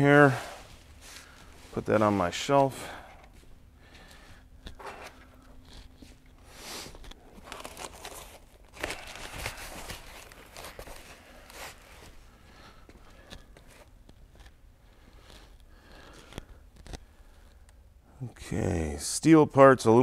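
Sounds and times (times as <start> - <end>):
paper rustling and crinkling: 3.4 - 14.6.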